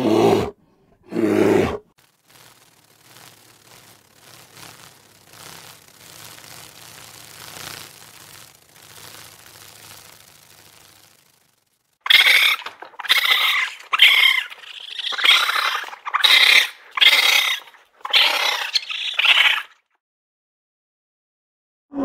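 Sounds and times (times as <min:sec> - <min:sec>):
raccoon dog harsh calls: 0:12.0 - 0:19.8.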